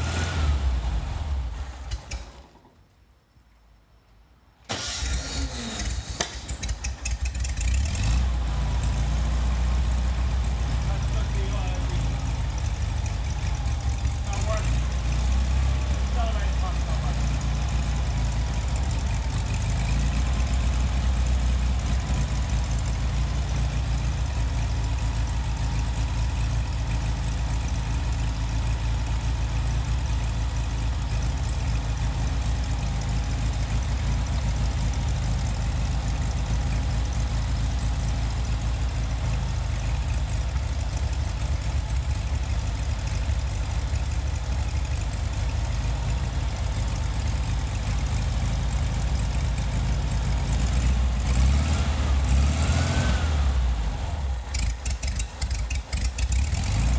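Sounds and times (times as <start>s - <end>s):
air-cooled car engine idling: 4.7s - 51.5s, 53.5s - 56.9s.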